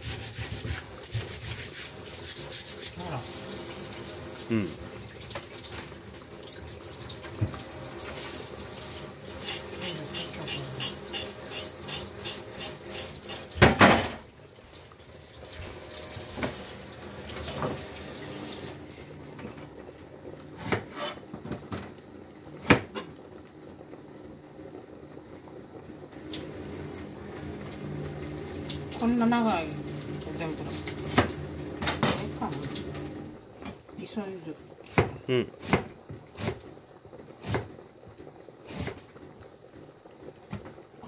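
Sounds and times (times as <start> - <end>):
scouring pad scrubbing root: 0.0 - 3.7
tap water running into sink: 0.0 - 19.6, 26.0 - 33.9.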